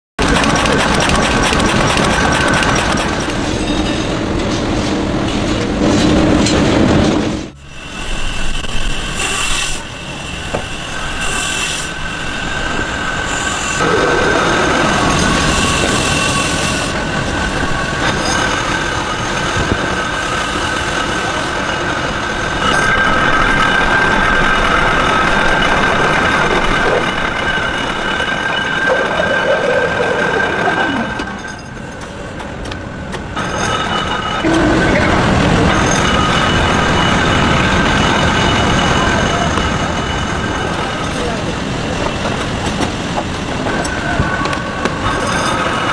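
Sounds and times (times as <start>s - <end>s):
woodworking machinery rattling: 0.2s - 3.6s
machine whine: 33.4s - 41.0s.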